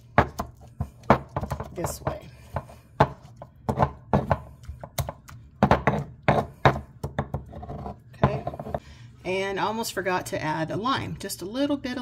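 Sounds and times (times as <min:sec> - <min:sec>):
stone pestle pounding: 0:00.1 - 0:08.8.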